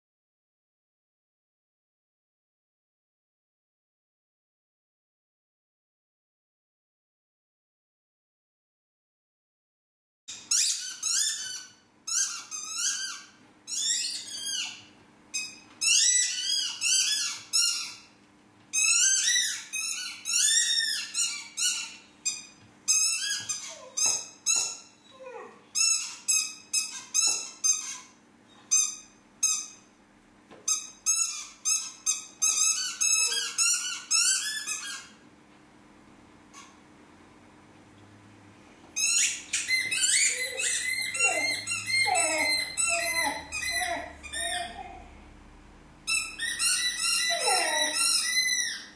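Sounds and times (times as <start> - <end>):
squeaky dog toy squeaking: 10.3 - 18.1, 18.7 - 29.9, 30.7 - 35.2, 39.0 - 45.0, 46.1 - 48.9.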